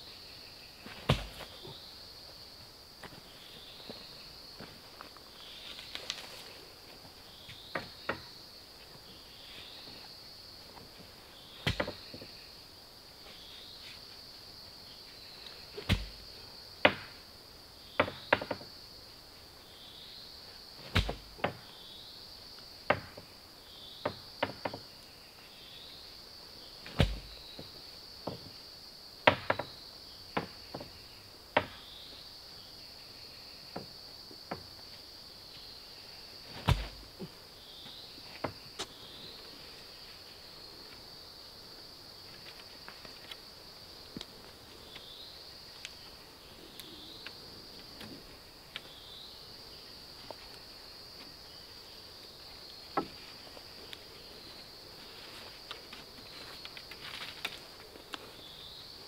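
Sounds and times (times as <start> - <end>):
high insect drone: 0.0 - 59.0
wooden pole knocking into ground: 0.9 - 1.5, 11.6 - 12.0, 15.9 - 16.2, 20.9 - 21.6, 27.0 - 27.3, 36.6 - 37.0.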